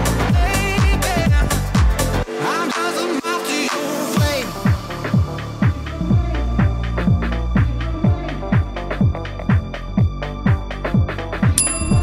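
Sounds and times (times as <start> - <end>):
electronic dance music: 0.0 - 12.0
kick drum: 0.3 - 2.0, 4.2 - 12.0.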